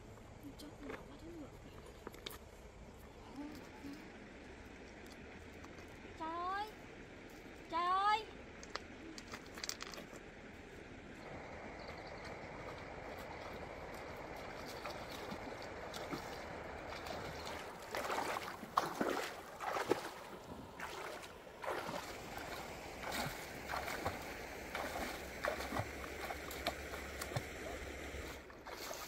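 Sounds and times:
legs splashing through water: 11.2 - 29.0
stream rushing: 11.2 - 29.0.

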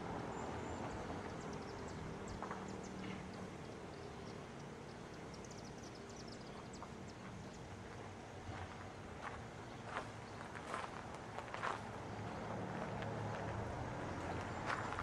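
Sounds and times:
small birds chirping: 0.0 - 11.1.

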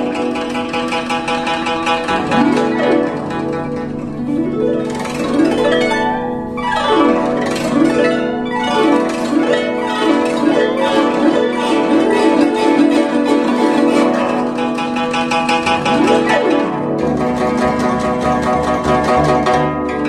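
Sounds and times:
guzheng glissandi: 0.0 - 20.0.

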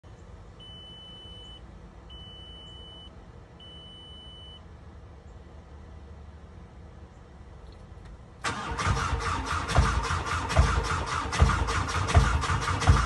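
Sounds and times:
low background rumble: 0.0 - 13.0
car warning chime beeps: 0.6 - 4.6.

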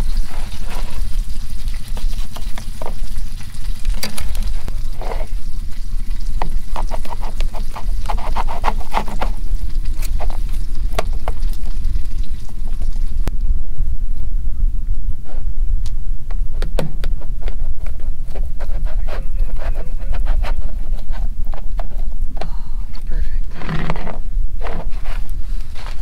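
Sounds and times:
steady low rumble: 9.2 - 26.0.

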